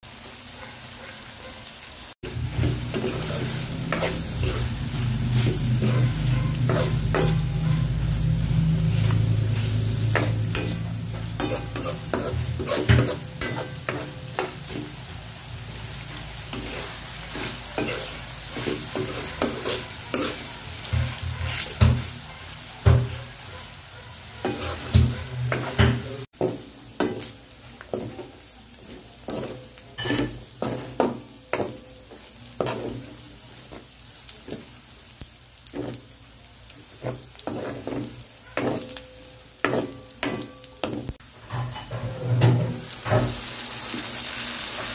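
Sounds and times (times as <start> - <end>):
meat sizzling in a wok: 0.0 - 44.9
spatula scraping a pan: 2.4 - 15.0, 16.0 - 23.5, 24.1 - 27.3, 27.9 - 34.7, 35.7 - 36.2, 36.9 - 39.0, 39.6 - 44.1.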